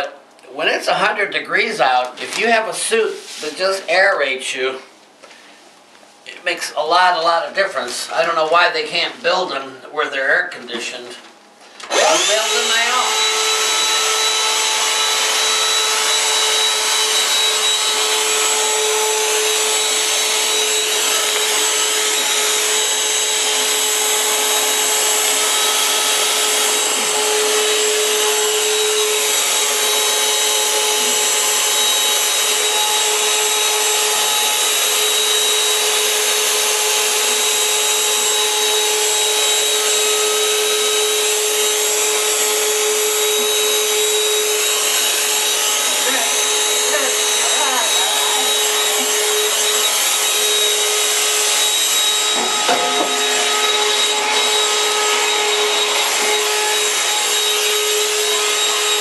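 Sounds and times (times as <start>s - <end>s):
electric blower whining: 11.7s - 59.0s.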